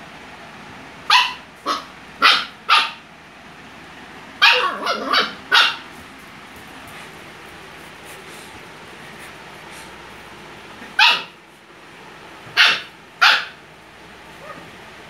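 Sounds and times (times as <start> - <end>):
puppy barking: 1.0 - 3.1, 4.4 - 6.0, 10.8 - 11.4, 12.5 - 13.6, 14.3 - 14.8.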